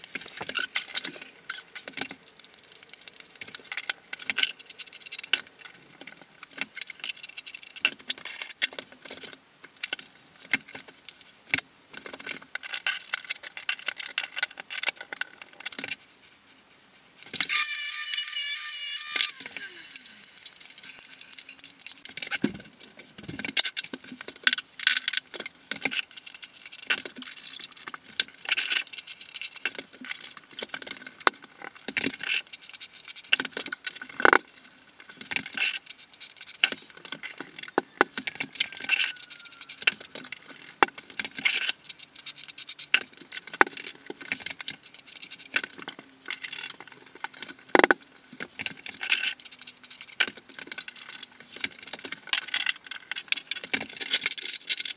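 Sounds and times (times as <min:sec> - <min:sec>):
ceramic tiles clicking and clinking: 0:35.4 - 0:46.8.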